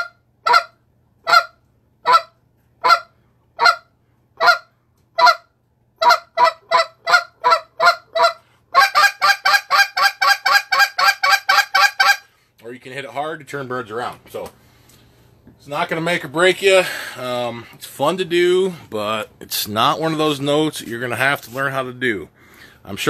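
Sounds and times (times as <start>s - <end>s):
goose call notes: 0.0s - 5.4s, 6.0s - 12.3s.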